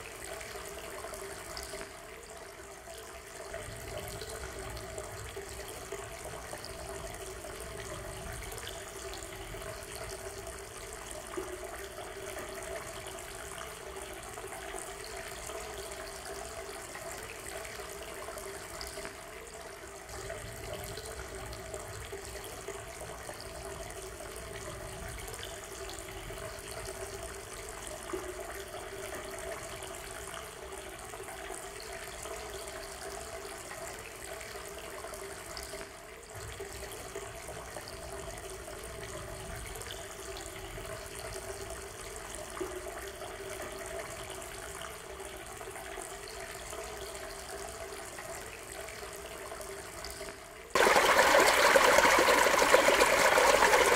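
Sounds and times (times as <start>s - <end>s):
river babbling over stones: 50.8s - 53.9s.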